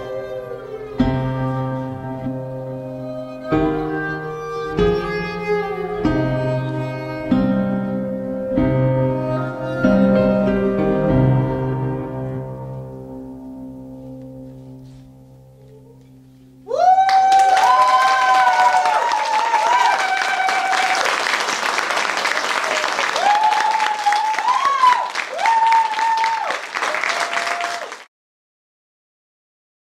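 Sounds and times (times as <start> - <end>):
soft music: 0.0 - 16.8
audience applause: 17.0 - 28.1.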